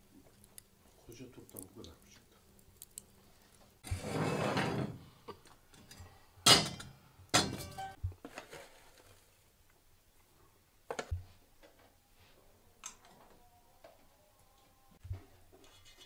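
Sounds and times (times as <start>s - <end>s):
metal scraping: 3.8s - 5.0s
metal teapots clanking on stove: 5.8s - 8.0s.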